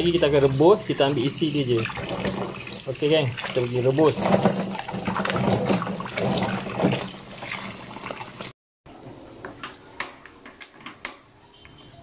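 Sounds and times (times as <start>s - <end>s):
tap water running: 0.0s - 8.5s.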